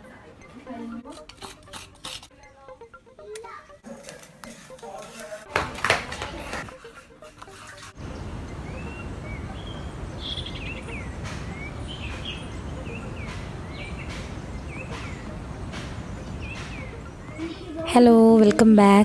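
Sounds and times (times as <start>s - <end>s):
birds chirping: 8.0s - 19.0s
low background noise: 8.0s - 19.0s.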